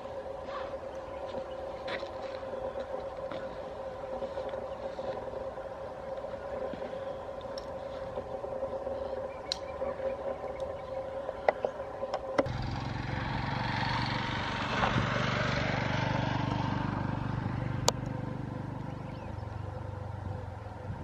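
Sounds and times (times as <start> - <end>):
sharp clicks: 9.5 - 9.8
vehicle engine passing: 12.4 - 21.0.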